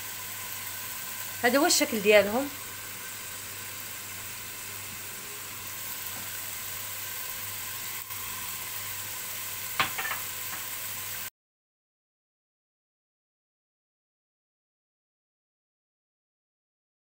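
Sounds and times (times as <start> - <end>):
vegetables sizzling in oil: 0.0 - 11.3.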